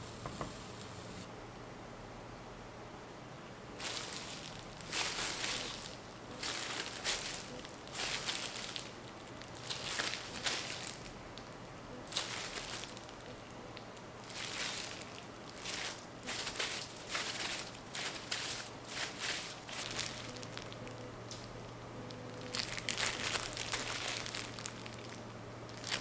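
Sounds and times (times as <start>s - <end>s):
plastic gloves crinkling: 3.8s - 26.0s.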